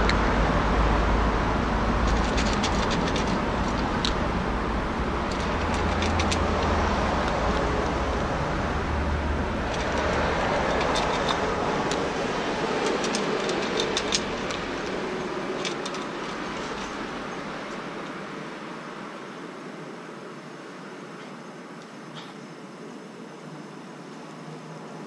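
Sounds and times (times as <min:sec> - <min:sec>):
traffic rumble: 0:00.0 - 0:25.0
cat crunching dry kibble: 0:02.0 - 0:08.6, 0:09.2 - 0:17.9.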